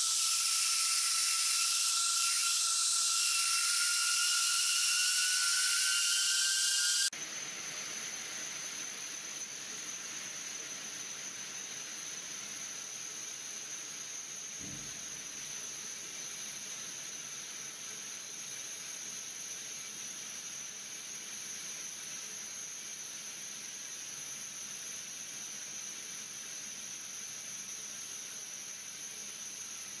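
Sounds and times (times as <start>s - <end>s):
thin high whine: 0.0s - 22.8s.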